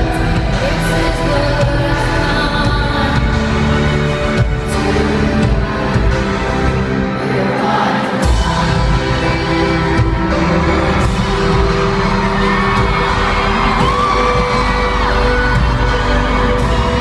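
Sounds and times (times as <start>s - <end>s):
live band with woman singing: 0.0s - 17.0s
crowd whooping: 10.3s - 17.0s.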